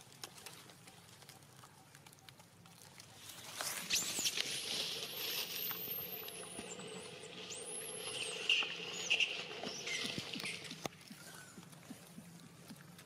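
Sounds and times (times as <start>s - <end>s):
infant monkey squeaking: 3.9s - 11.6s.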